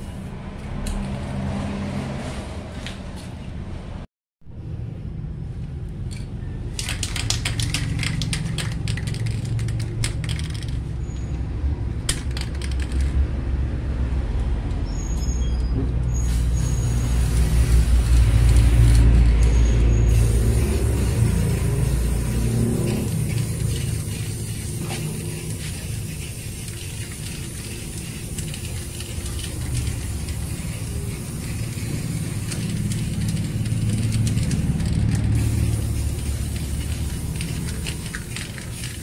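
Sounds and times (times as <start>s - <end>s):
spray paint hissing: 0.0s - 0.7s, 6.7s - 10.9s, 12.1s - 13.2s, 16.1s - 39.0s
spray can clicking and rattling: 6.1s - 10.9s, 12.1s - 13.2s, 16.4s - 19.4s, 20.1s - 39.0s.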